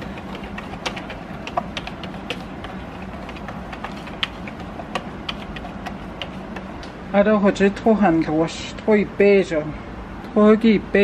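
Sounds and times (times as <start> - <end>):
whisk clicking against bowl: 0.0 - 6.8.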